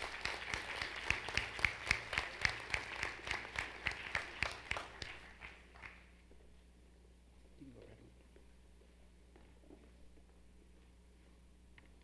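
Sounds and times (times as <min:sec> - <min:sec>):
audience applauding: 0:00.0 - 0:06.1
sharp nearby claps: 0:00.0 - 0:06.1.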